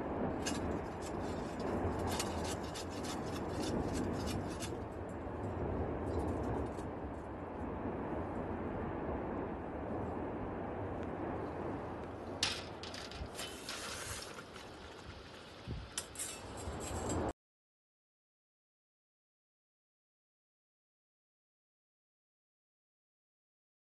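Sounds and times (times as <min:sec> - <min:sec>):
metal can scraping and clinking: 0:12.4 - 0:15.0.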